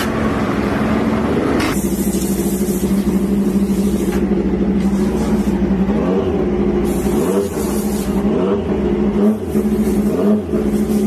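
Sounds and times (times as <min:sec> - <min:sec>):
motorcycle engine idling fast: 0:00.0 - 0:11.0.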